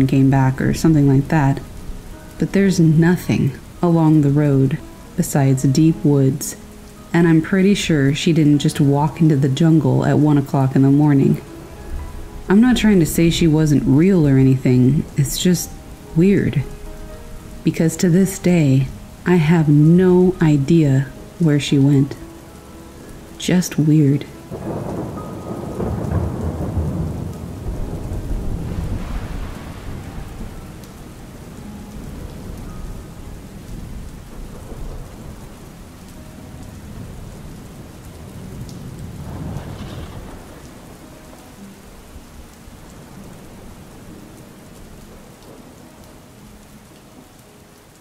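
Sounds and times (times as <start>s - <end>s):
rain falling: 0.0s - 48.0s
rolling thunder: 24.5s - 41.4s.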